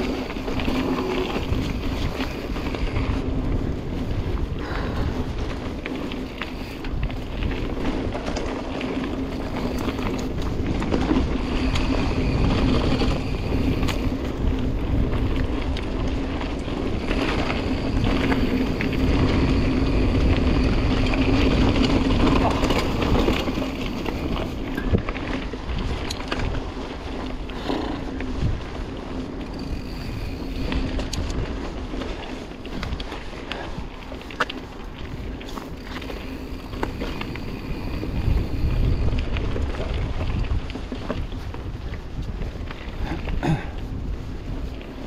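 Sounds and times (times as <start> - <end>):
bike clicks and rattles: 0.0 - 45.0
tyres on dirt: 0.0 - 45.0
wind rushing over microphone: 0.0 - 45.0.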